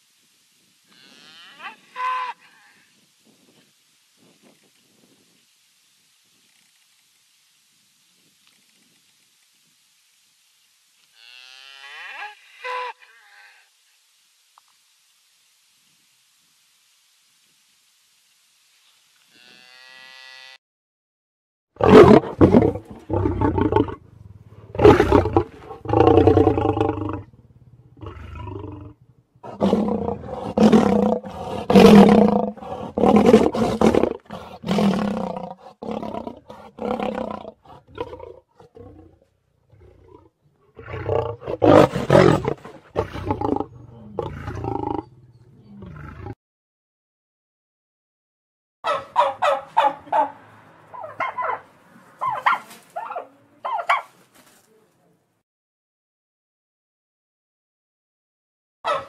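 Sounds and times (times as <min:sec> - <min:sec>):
lion roaring and growling: 0:21.8 - 0:46.4.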